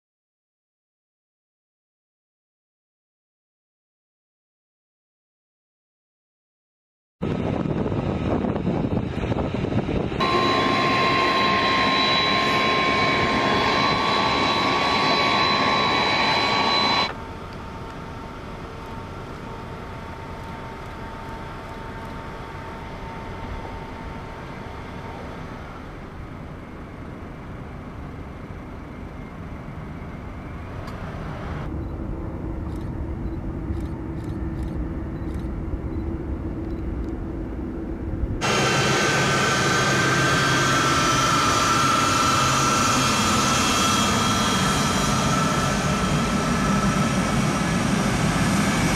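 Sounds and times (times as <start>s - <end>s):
distant jet taking off: 7.2s - 17.4s, 23.0s - 48.9s
distant jet engines humming: 7.2s - 48.9s
jet engines whining: 7.2s - 48.9s.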